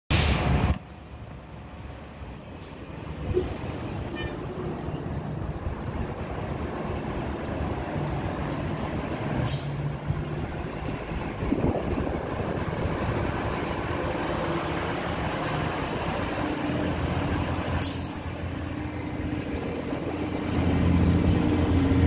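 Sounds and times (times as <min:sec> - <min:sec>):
air brake hisses: 0:00.1 - 0:00.6, 0:09.4 - 0:09.9, 0:17.8 - 0:18.2
bus engine running: 0:00.1 - 0:22.0.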